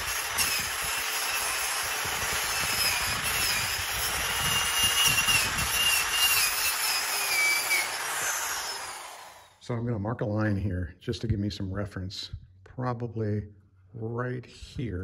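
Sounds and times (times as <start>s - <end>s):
wire brush grinder scrubbing metal: 0.0s - 9.6s.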